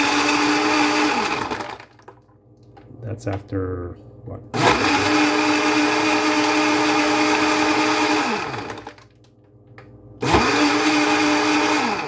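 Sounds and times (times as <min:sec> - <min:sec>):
blender crushing ice: 0:00.0 - 0:02.2, 0:04.6 - 0:09.2, 0:10.2 - 0:12.0.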